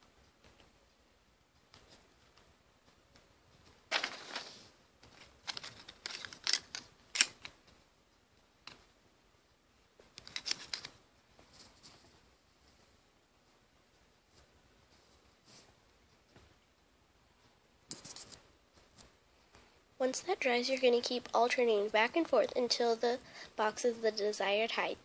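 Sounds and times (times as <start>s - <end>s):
handling noise: 1.5s - 7.9s, 10.0s - 16.6s
light clicks and taps: 8.6s - 8.9s.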